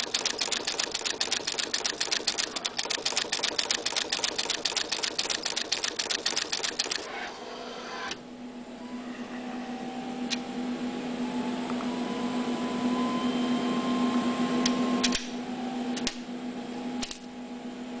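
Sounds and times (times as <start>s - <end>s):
rapid mechanical clatter: 0.0s - 7.1s
sharp clicks: 0.0s - 7.1s
machine hum with rising whine: 0.0s - 18.0s.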